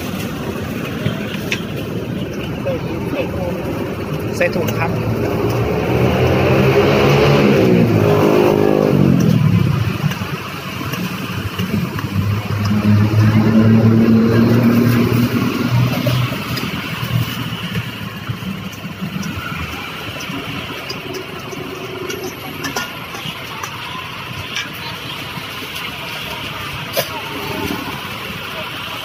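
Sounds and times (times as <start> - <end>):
vehicle engine passing: 0.0 - 22.7
engine running steadily: 0.0 - 29.0.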